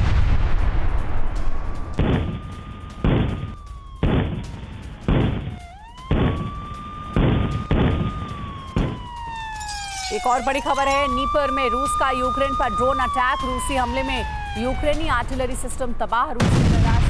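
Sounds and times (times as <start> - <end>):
heavy booms: 0.0 - 6.6, 16.4 - 17.0
siren wailing: 1.9 - 16.4.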